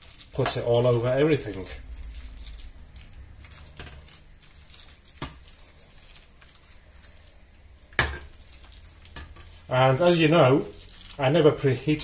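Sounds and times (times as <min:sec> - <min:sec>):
liquid trickling and splashing: 0:00.0 - 0:12.0.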